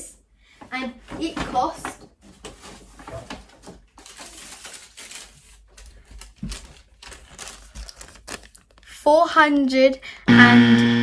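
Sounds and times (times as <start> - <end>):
paper bag rustling: 1.1 - 8.9.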